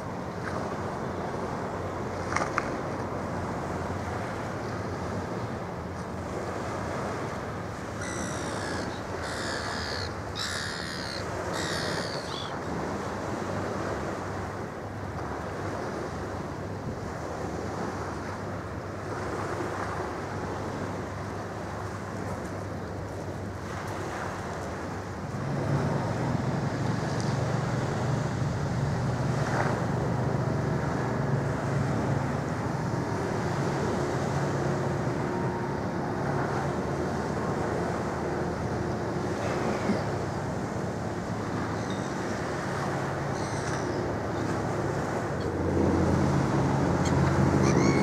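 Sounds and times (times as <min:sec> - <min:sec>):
water noise: 0:00.0 - 0:48.0
wind: 0:00.0 - 0:48.0
gull calling: 0:08.0 - 0:12.6, 0:47.0 - 0:48.0.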